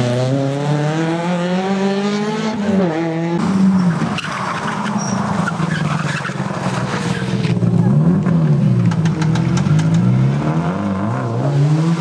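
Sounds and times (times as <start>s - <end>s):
rally car engine revving: 0.0s - 12.0s
tyres skidding: 3.4s - 12.0s.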